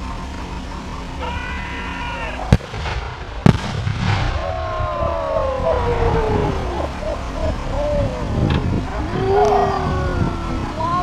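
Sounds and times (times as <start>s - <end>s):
explosion bangs: 2.5s - 6.5s.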